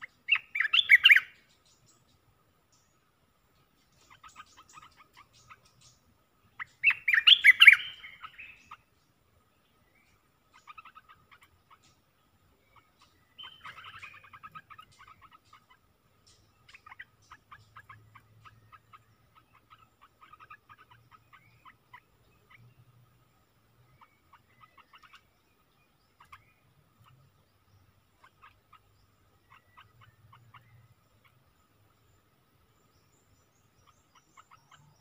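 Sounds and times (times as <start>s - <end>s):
bird short chirps: 0.0s - 2.9s, 3.9s - 9.0s, 12.7s - 22.7s, 23.9s - 31.4s, 32.8s - 35.0s.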